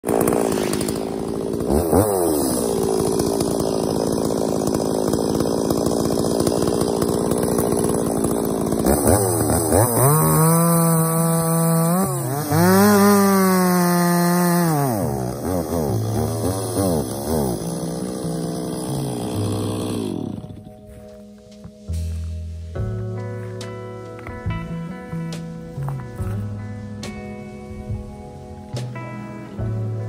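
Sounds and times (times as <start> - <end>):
chainsaw cutting a log: 0.0 - 21.2
chainsaw idling: 0.0 - 21.3.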